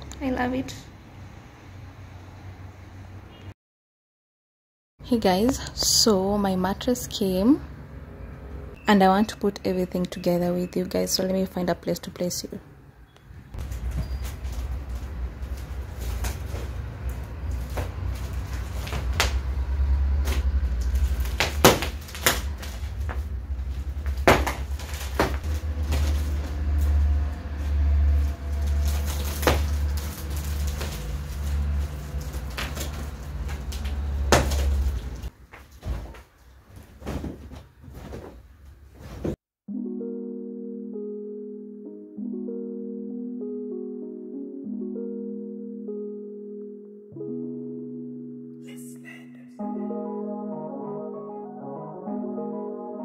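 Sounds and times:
plastic wrap rustling and crackling: 13.6s - 19.5s, 20.2s - 39.4s.

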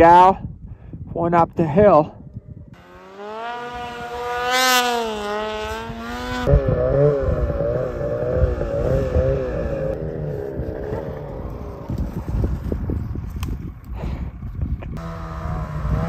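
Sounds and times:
snowmobile engine revving: 2.8s - 12.8s, 15.0s - 16.0s
snowmobile climbing slope: 2.8s - 16.0s.

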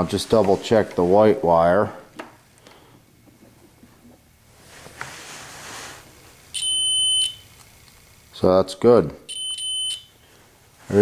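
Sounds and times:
multimeter continuity beep: 6.5s - 7.6s, 9.3s - 10.2s.

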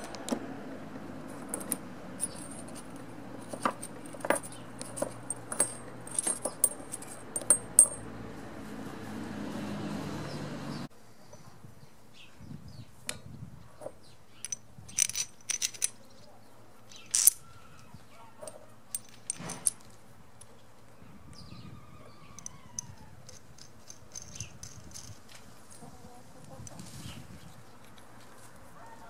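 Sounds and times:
metal nuts and bolts clinking: 0.0s - 0.3s, 1.3s - 8.1s, 14.4s - 16.2s, 16.9s - 20.6s, 22.4s - 25.9s.

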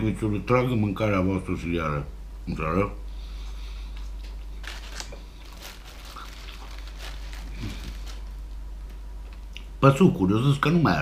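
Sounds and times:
bread roll tearing: 4.6s - 8.5s
paper wrapper crinkling: 4.6s - 9.5s.

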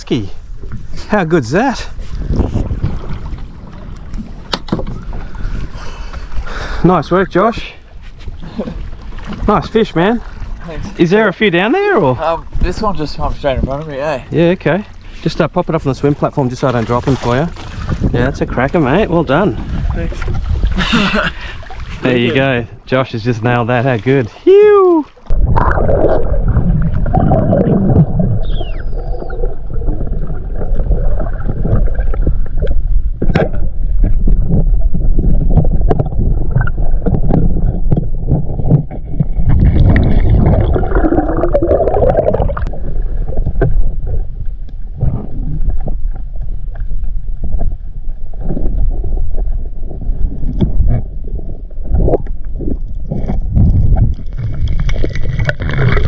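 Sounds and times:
low rumble of moving water: 0.0s - 56.0s
underwater clicks and knocks: 2.8s - 5.1s, 31.2s - 47.8s, 48.4s - 56.0s.

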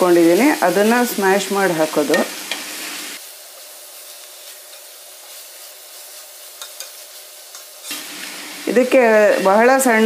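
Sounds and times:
vegetables sizzling in oil: 0.0s - 10.0s
spatula stirring in pot: 3.5s - 7.9s.

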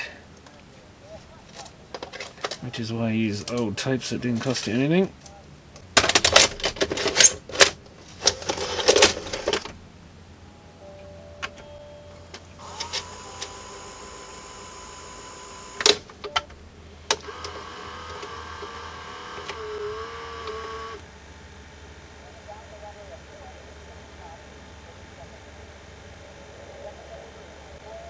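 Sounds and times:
steady motor whine: 12.4s - 28.0s
tape mechanism clicks: 12.6s - 21.1s.

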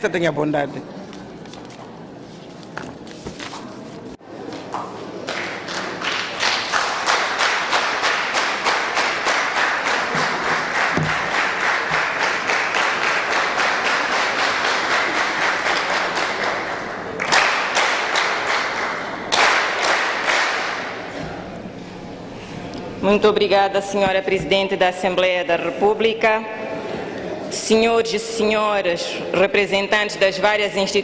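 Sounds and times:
many hands clapping: 4.5s - 21.1s.

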